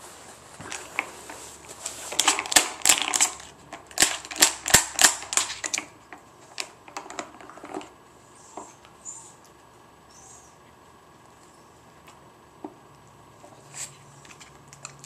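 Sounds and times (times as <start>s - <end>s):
plastic pegs clicking and clattering: 2.1s - 5.9s, 6.5s - 7.9s.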